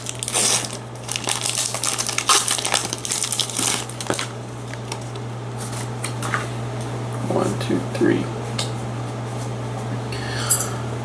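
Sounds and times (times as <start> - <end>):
foil wrapper crinkling: 0.0 - 5.2
steady low hum: 0.0 - 11.0.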